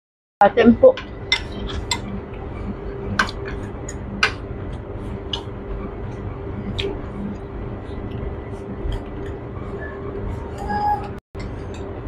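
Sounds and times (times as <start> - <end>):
steady low hum: 0.4 - 12.0
cutlery clinking on ceramic bowls: 1.3 - 2.0.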